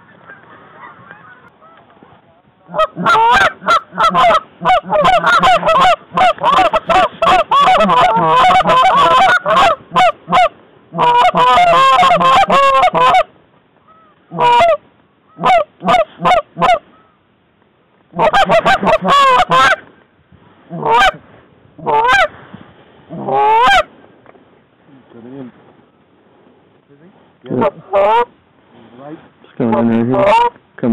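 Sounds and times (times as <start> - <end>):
goose calls honking and clucking: 2.6 - 17.2, 18.1 - 19.8, 20.7 - 21.2, 21.8 - 22.3, 23.1 - 23.9, 27.5 - 28.4, 29.7 - 30.6.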